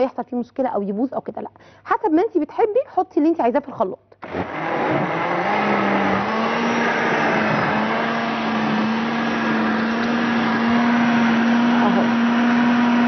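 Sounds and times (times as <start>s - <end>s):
electric blender running: 4.2s - 13.0s.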